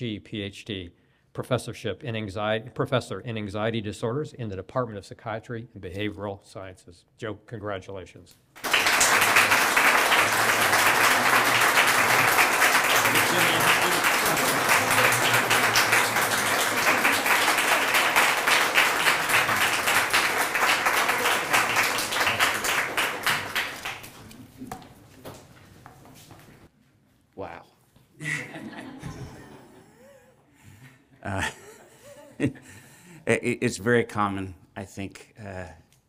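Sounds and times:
audience applauding: 8.6 - 24.4.

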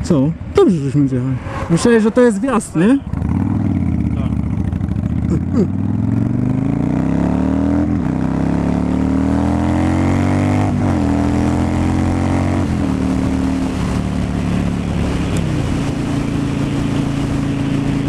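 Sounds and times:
wind noise: 0.0 - 5.1, 10.2 - 18.0
motorcycle accelerating: 1.0 - 18.0.

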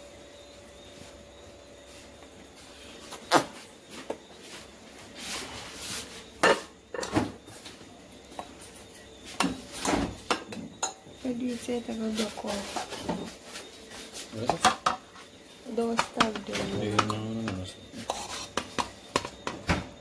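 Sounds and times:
plates clinking: 6.4 - 7.2, 15.8 - 19.7.

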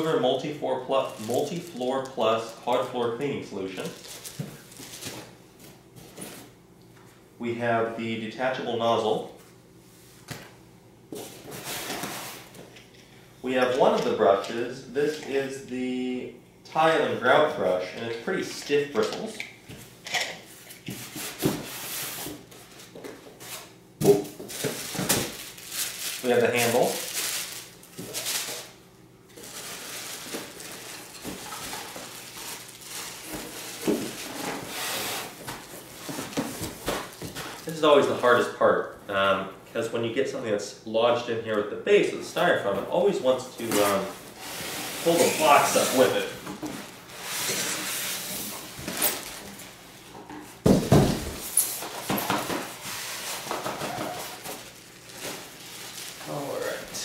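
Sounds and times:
plastic and cardboard rustling: 0.0 - 3.0, 3.7 - 6.5, 19.0 - 38.6, 42.6 - 57.0
styrofoam and cardboard scraping: 29.4 - 37.8, 43.7 - 46.3.

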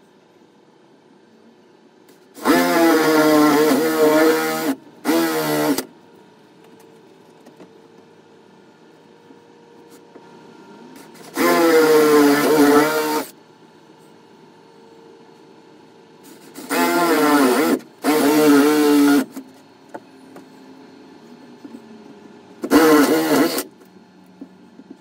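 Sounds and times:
cordless drill boring into wood: 2.4 - 5.9, 11.2 - 13.3, 16.6 - 19.3, 22.6 - 23.7.

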